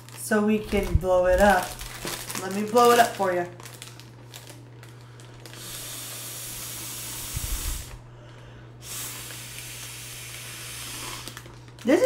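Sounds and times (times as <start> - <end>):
breath blown into foil balloon: 5.5 - 8.1, 8.8 - 11.5.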